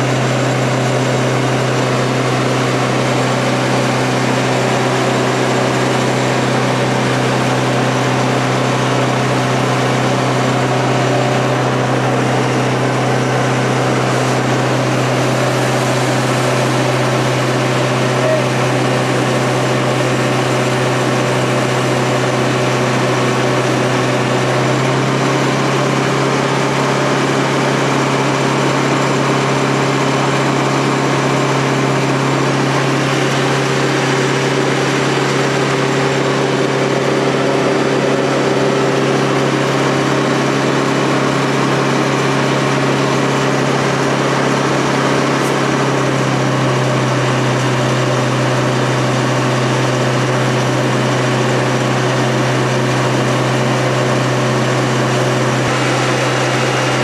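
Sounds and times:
pump engine droning: 0.0s - 57.0s
water jet hissing: 55.6s - 57.0s.

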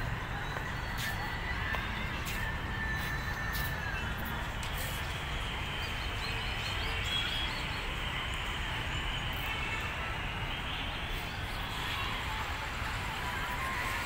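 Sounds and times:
rushing outdoor noise: 0.0s - 14.0s.

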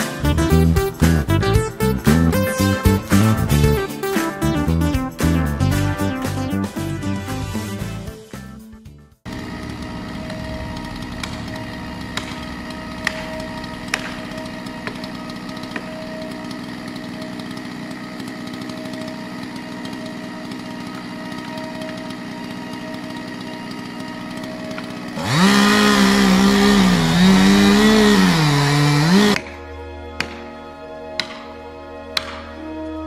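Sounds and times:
chainsaw cutting wood: 9.3s - 29.6s, 30.2s - 30.5s, 31.2s - 31.5s, 32.2s - 32.5s.

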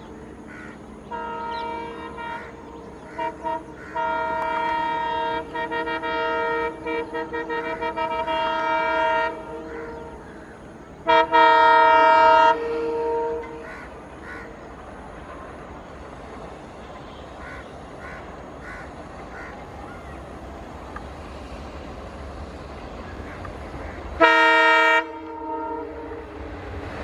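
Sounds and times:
locomotive horns honking: 1.0s - 10.2s, 11.0s - 14.1s, 23.2s - 26.9s.

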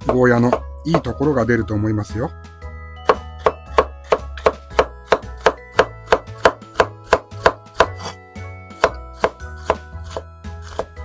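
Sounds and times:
knife chopping on wooden board: 0.0s - 1.1s, 3.0s - 8.2s, 8.8s - 11.0s.

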